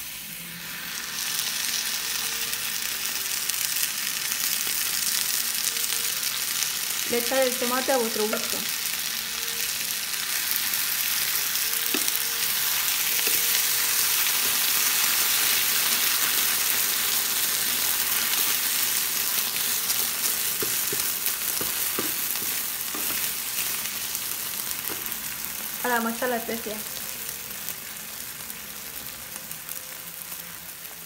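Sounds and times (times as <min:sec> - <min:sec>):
vegetables sizzling in a frying pan: 0:00.0 - 0:31.0
wooden spatula stirring: 0:18.3 - 0:24.2
spatula knocking against pan: 0:20.6 - 0:23.3.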